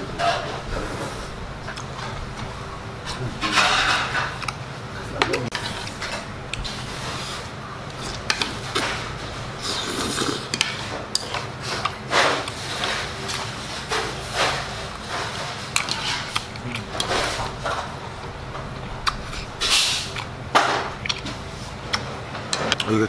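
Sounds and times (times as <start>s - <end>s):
slurping and chewing: 5.5s - 17.9s.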